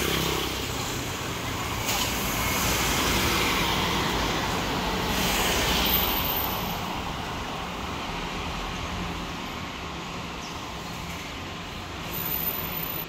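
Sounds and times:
cars driving past: 0.0s - 13.0s.

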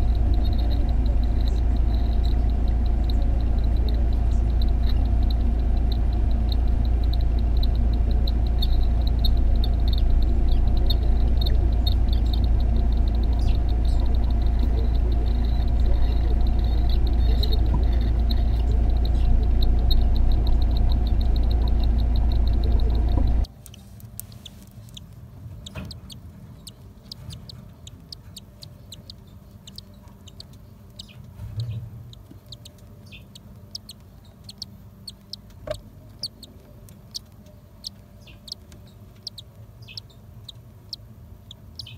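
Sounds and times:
loud low hum: 0.0s - 23.5s
chicks cheeping: 0.0s - 23.8s, 24.4s - 41.9s
faint high peeping: 0.0s - 41.9s.

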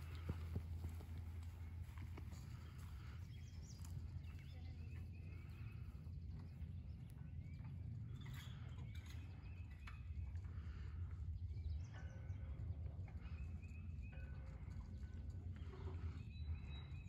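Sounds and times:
faint bird chirps: 11.5s - 17.0s.

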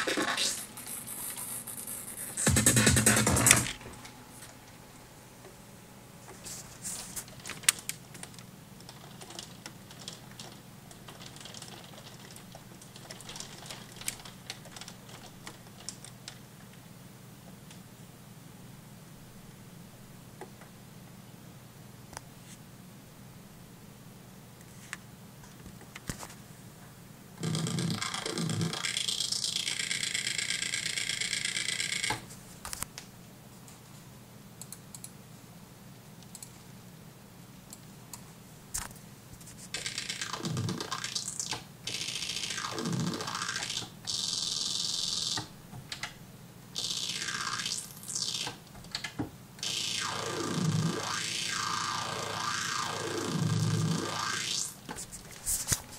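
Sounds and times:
buzzy synthesizer notes: 0.0s - 4.0s, 39.9s - 45.4s, 46.8s - 48.6s, 49.6s - 54.8s.

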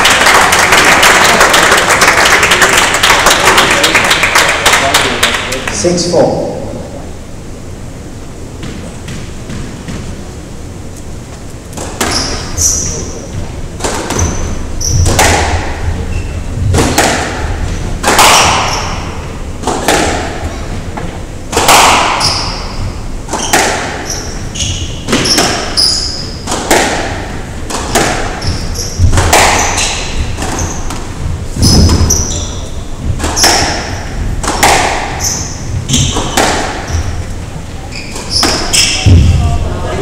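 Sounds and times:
squash ball hitting rackets and walls: 8.6s - 10.3s, 11.7s - 39.5s
shoes squeaking on wooden floor: 11.3s - 15.3s, 15.9s - 16.5s, 22.2s - 26.4s, 28.2s - 34.2s, 35.1s - 39.3s.

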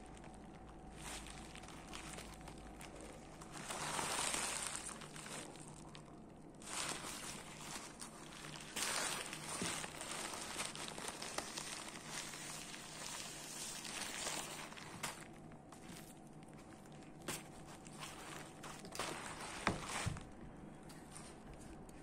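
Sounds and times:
bubble wrap crinkling: 0.0s - 22.0s.

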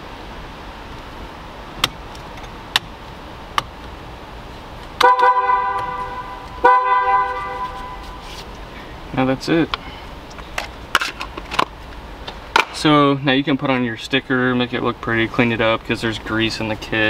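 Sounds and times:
car horn honking: 5.0s - 8.4s.

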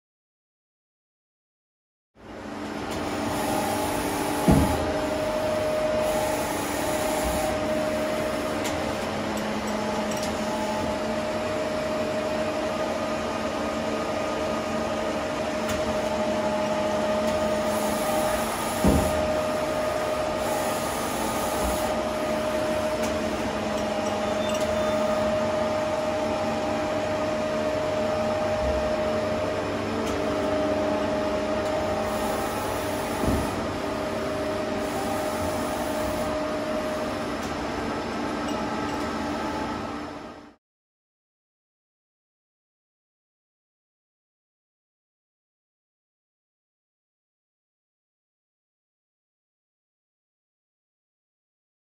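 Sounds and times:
lathe humming and whining: 2.2s - 40.6s.

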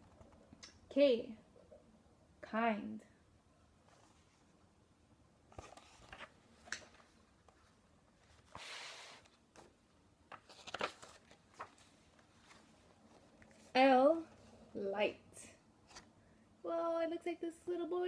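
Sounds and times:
page turning swish: 10.3s - 12.8s.

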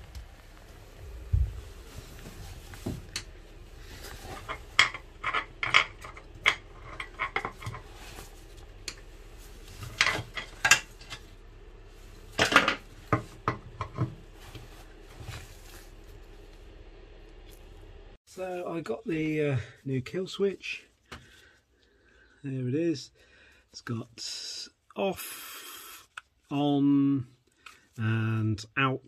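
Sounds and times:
clicks and knocks of handling: 4.2s - 7.9s.

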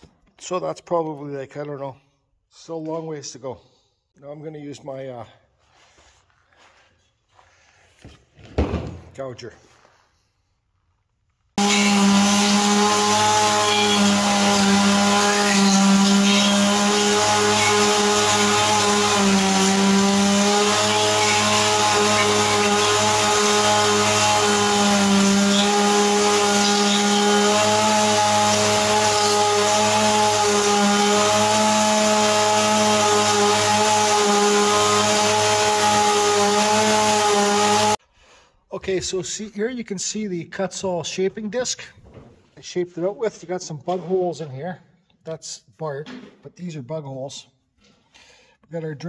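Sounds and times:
chainsaw running at high throttle: 11.6s - 38.0s.

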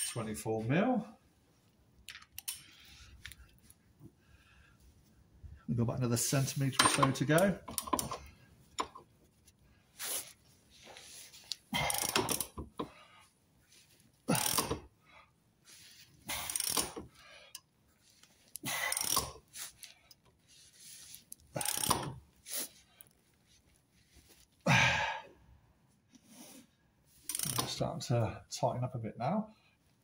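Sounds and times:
socket ratchet clicking: 6.8s - 9.0s, 11.5s - 12.9s, 14.3s - 14.8s, 16.3s - 17.6s, 18.5s - 19.4s, 21.3s - 22.2s, 27.3s - 27.7s.

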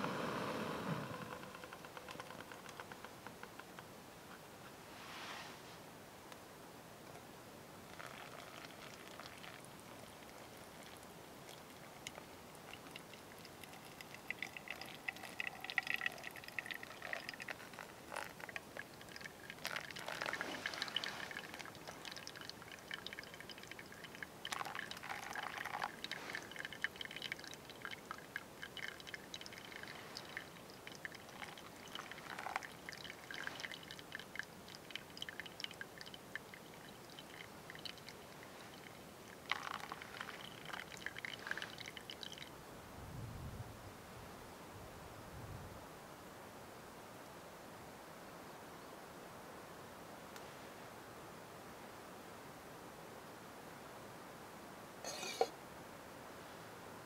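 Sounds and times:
hot water pouring onto coffee: 0.0s - 2.7s, 7.9s - 42.5s
coffee dripping from filter: 0.0s - 3.8s, 7.8s - 42.5s, 55.0s - 55.5s.

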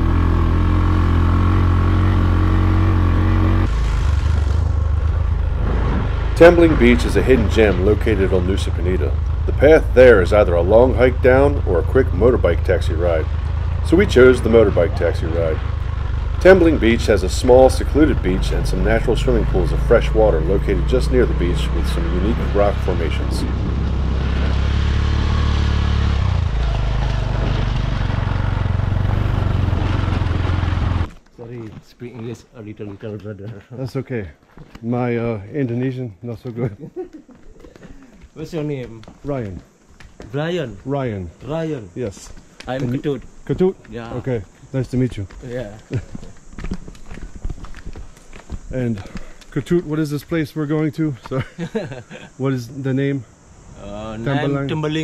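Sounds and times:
motorbike engine running: 0.0s - 31.2s.

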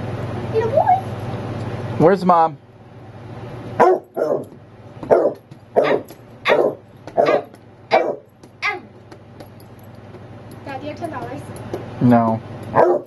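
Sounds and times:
dog barking: 3.8s - 4.5s, 5.1s - 8.3s, 12.7s - 13.0s.

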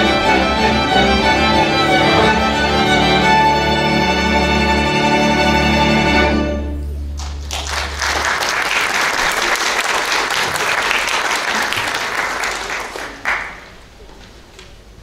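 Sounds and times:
audience applauding: 7.2s - 14.1s.

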